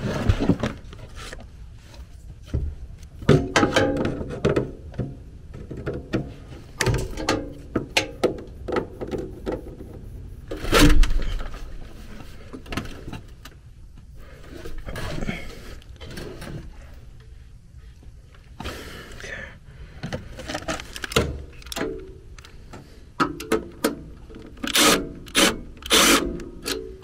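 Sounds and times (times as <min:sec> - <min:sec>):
metal clicks scrapes and knocks: 0:23.2 - 0:27.0.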